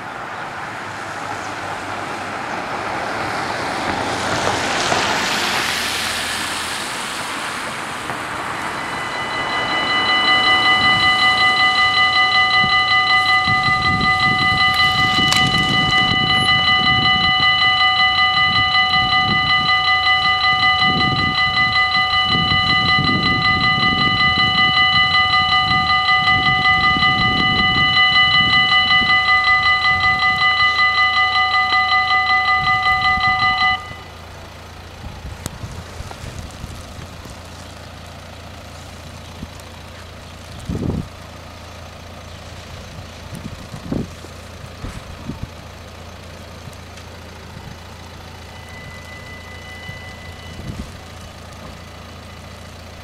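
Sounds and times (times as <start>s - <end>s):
level crossing bells ringing: 6.5s - 35.5s, 45.4s - 53.0s.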